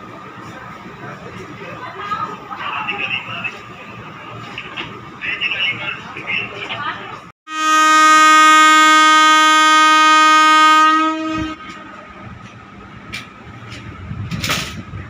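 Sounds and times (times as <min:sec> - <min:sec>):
low train rumble: 0:00.0 - 0:15.0
locomotive horn blast: 0:07.5 - 0:12.1.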